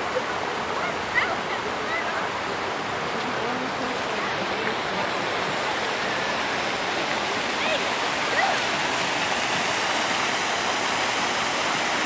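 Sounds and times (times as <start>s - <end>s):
people chattering: 0.0s - 8.9s
fountain water splashing: 0.0s - 12.0s.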